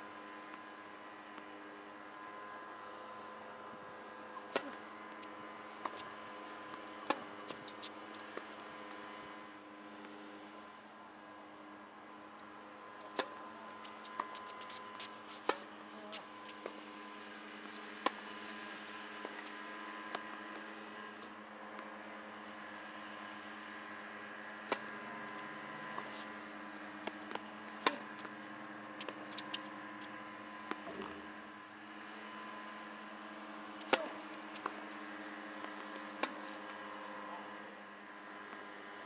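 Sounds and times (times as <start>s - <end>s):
tennis balls struck by rackets: 4.4s - 9.1s, 13.0s - 15.7s, 16.6s - 21.0s, 24.6s - 29.8s, 33.8s - 37.4s.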